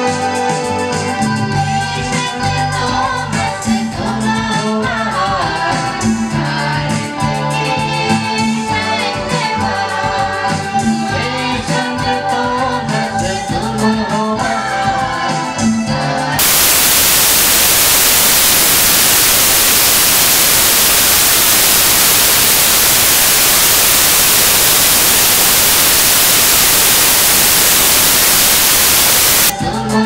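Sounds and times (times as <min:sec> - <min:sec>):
white noise static: 0:16.4 - 0:29.6.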